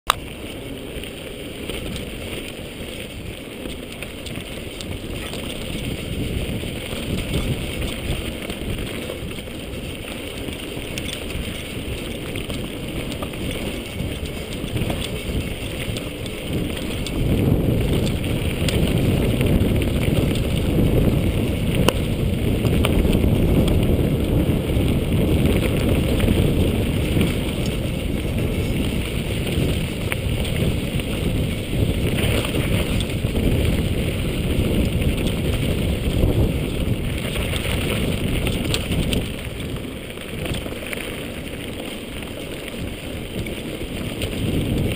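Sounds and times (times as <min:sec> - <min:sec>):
sharp clicks from bike: 0:00.1 - 0:44.9
tyres rolling on dirt: 0:00.1 - 0:44.9
wind rumble on microphone: 0:00.1 - 0:44.9.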